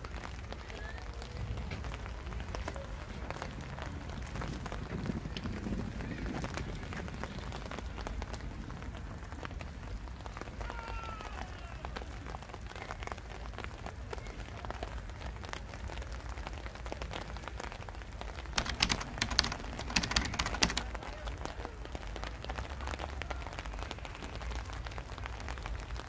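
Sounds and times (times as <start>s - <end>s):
drops ticking on hard surfaces: 18.6s - 20.9s.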